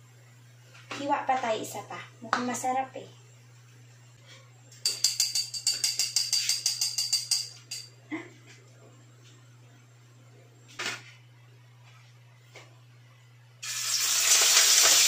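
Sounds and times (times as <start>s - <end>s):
rapid jingling percussion: 4.8s - 7.9s.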